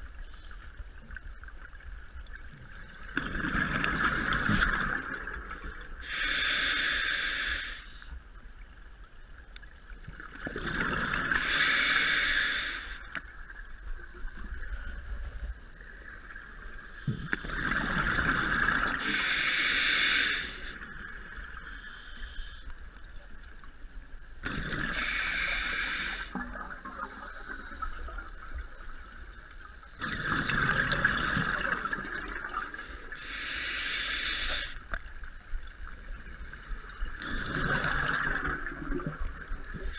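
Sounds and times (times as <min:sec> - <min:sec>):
regulator inhale hiss: 0:00.0 - 0:01.1, 0:06.0 - 0:08.2, 0:11.4 - 0:13.2, 0:16.8 - 0:17.6, 0:18.9 - 0:20.9, 0:21.6 - 0:23.0, 0:24.9 - 0:26.4, 0:32.7 - 0:35.1
exhaled bubbles rushing: 0:03.0 - 0:05.8, 0:30.0 - 0:32.8, 0:37.2 - 0:39.8.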